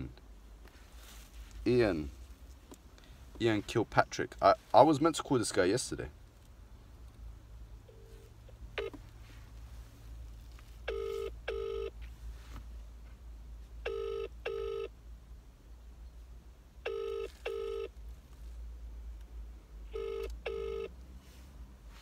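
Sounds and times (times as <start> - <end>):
phone ringback tone: 10.9 - 11.9, 13.9 - 14.9, 16.9 - 17.9, 19.9 - 20.9.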